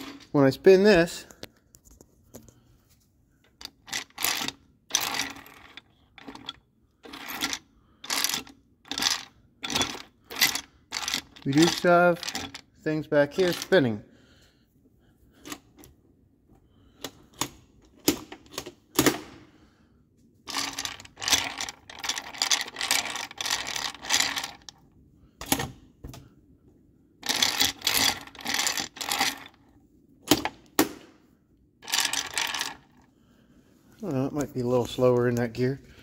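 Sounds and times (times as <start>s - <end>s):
gears clicking and clattering: 3.5s - 12.7s, 20.5s - 24.8s, 27.2s - 29.6s, 31.8s - 33.0s.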